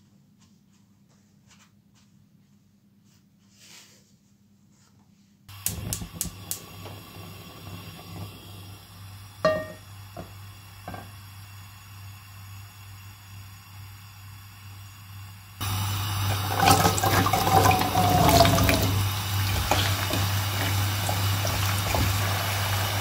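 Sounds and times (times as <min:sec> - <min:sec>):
gas burner igniter clicks: 0:05.5 - 0:07.1
gas burner humming: 0:05.5 - 0:23.0
metal pan clanging on grate: 0:09.4 - 0:09.8.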